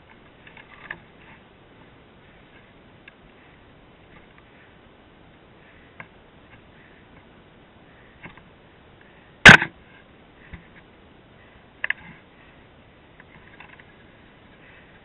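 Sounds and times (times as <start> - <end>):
sharp knocks on dirt bike: 9.5 - 9.8.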